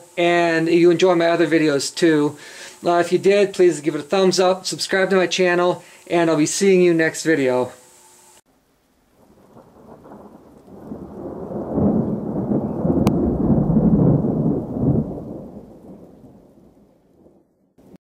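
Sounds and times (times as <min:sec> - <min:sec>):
rolling thunder: 0:09.2 - 0:18.0.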